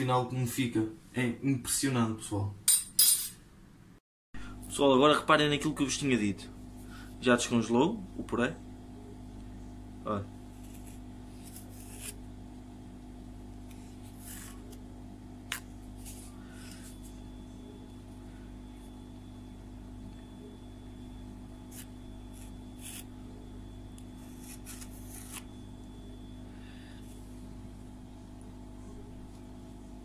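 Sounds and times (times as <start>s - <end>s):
low background hum: 0.0s - 30.0s.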